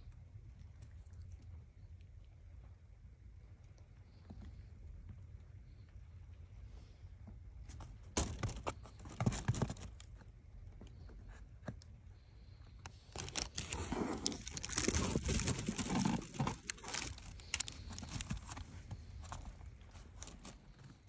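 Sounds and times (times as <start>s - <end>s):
cat rustling in cardboard box: 7.7s - 10.2s, 13.1s - 21.0s.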